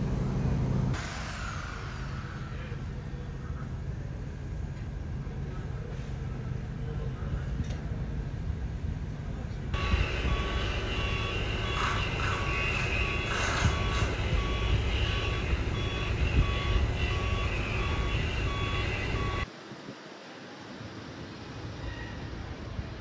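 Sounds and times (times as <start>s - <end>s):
engine running: 0.0s - 19.5s
vehicle backup alarm beeping: 9.8s - 19.5s.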